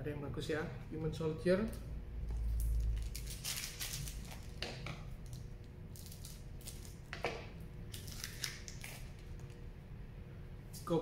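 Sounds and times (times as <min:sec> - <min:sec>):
foil wrapper crinkling: 0:02.6 - 0:04.6, 0:07.9 - 0:09.5.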